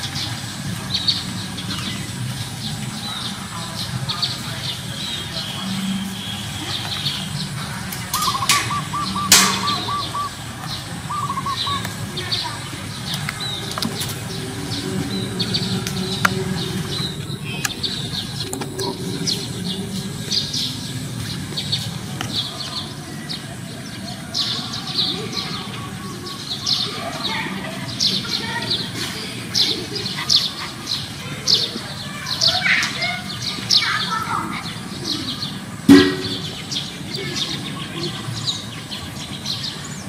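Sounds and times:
steady low rumble: 0.0s - 22.5s
small birds chirping: 0.0s - 40.0s.

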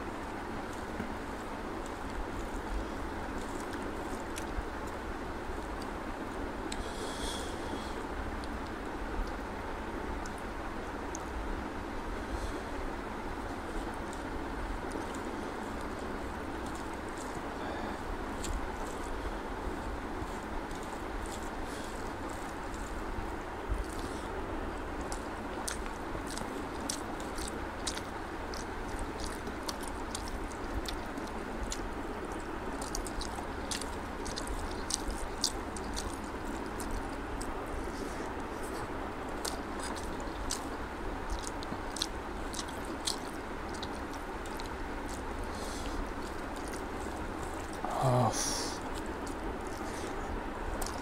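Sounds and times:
steady background hiss: 0.0s - 51.0s
chewing with wet clicks: 0.5s - 11.9s, 12.8s - 47.9s, 48.8s - 51.0s
fingers squishing rice: 13.0s - 51.0s.

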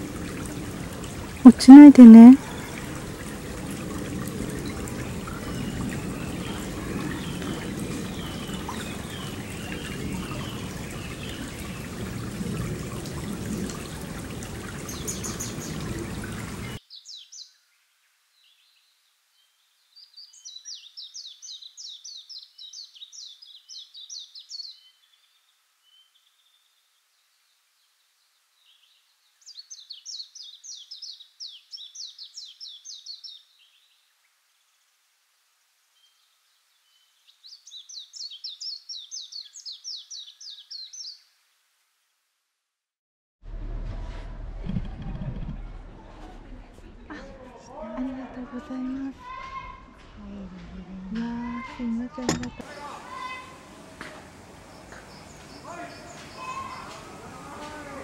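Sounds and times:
water rushing in stony stream: 0.0s - 16.8s
songbird singing: 4.5s - 12.0s, 14.8s - 34.8s, 35.9s - 41.4s, 50.2s - 57.8s.

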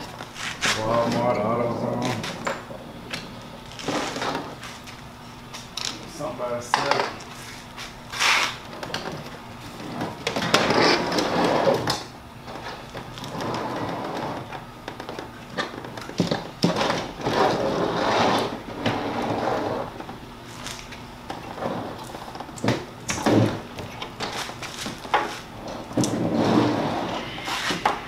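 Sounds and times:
scraping of sheet metal and plastic: 16.6s - 20.0s.

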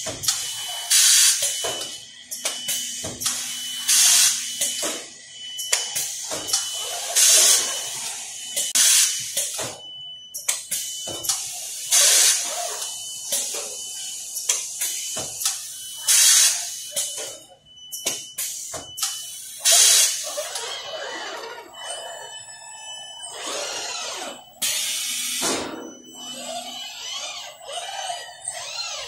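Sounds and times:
wavering whine: 20.2s - 29.0s.

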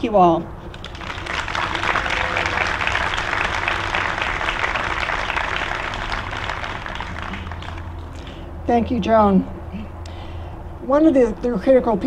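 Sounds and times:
audience applauding: 0.7s - 8.4s.

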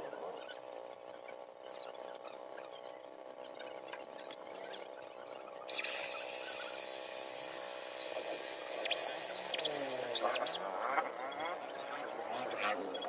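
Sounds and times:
electric drill boring into wood: 5.7s - 10.6s.

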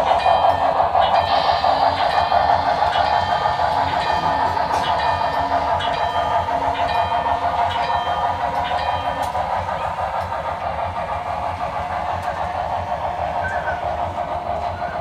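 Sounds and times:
steady train rumble: 0.0s - 15.0s
crossing signal electronic bell: 0.1s - 9.4s.

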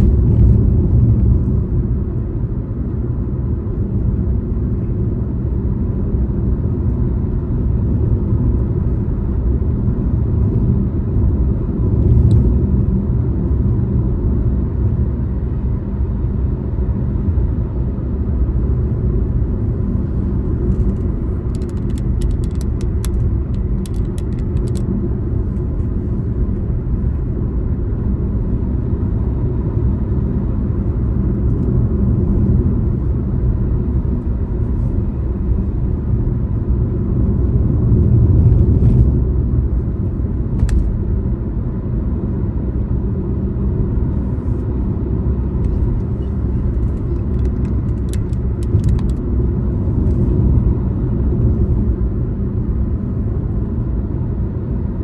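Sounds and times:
car driving on road: 0.0s - 55.0s
light clicks or rattles: 20.7s - 24.9s.

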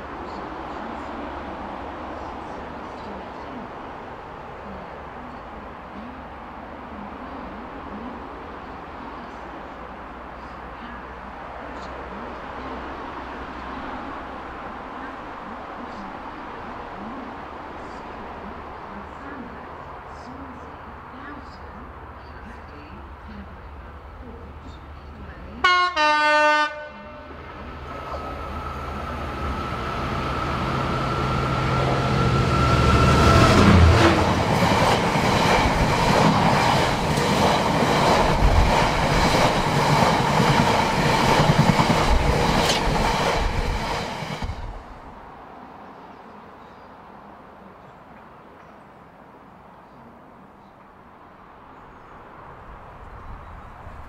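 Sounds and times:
diesel locomotive engine: 0.0s - 45.6s
train horn: 25.6s - 27.4s.

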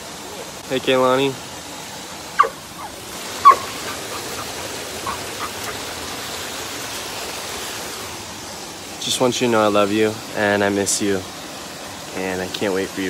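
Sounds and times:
waterfall rushing: 0.0s - 13.0s
dog yipping: 2.4s - 5.8s.

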